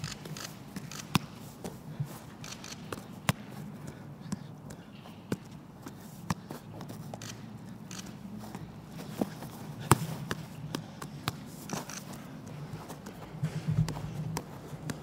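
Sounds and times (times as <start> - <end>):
steady low hum: 0.0 - 15.0
scuffs on artificial turf: 0.2 - 15.0
football taps off feet: 8.5 - 15.0.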